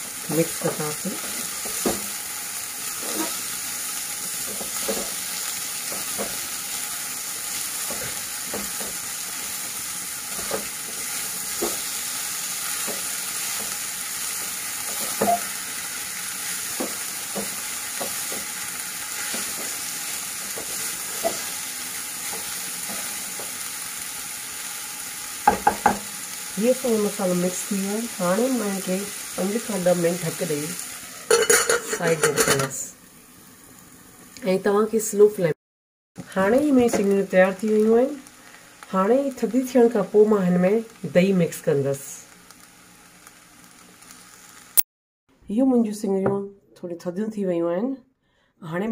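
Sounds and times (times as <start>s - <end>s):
food sizzling in oil: 0.0s - 35.2s, 36.2s - 44.9s
spatula scraping and tapping pan: 4.4s - 5.2s, 16.7s - 18.5s, 20.5s - 21.5s.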